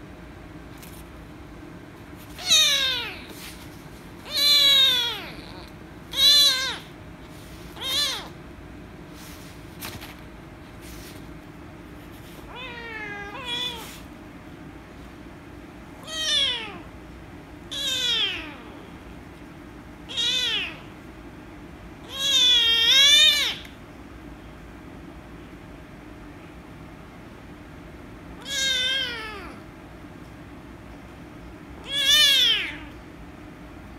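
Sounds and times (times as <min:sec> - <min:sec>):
kitten meowing loudly: 0:02.4 - 0:03.3, 0:04.2 - 0:06.9, 0:07.8 - 0:08.4, 0:12.5 - 0:14.0, 0:16.0 - 0:16.8, 0:17.7 - 0:18.7, 0:20.1 - 0:20.8, 0:22.0 - 0:23.7, 0:28.4 - 0:29.6, 0:31.8 - 0:32.9.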